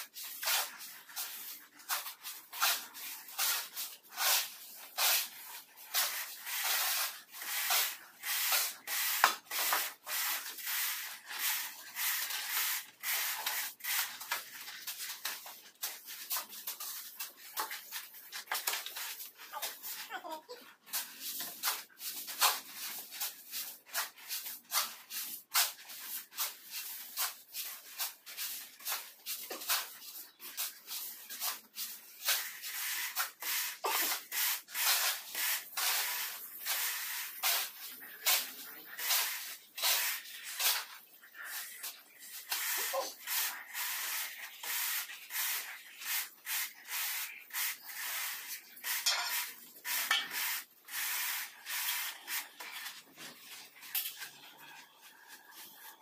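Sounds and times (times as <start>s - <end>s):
hand tools scraping mortar: 0.0s - 56.0s.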